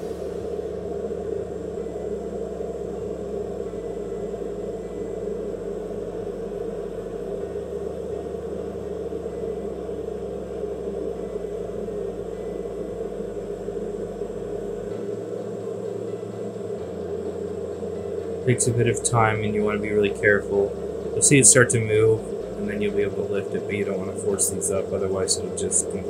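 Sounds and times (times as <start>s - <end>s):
hot air station blowing: 10.6s - 26.0s.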